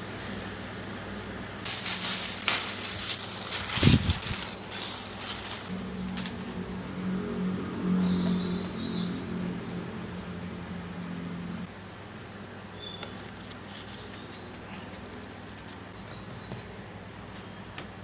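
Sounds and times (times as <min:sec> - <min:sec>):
plastic wrap crinkling: 0:01.7 - 0:05.7.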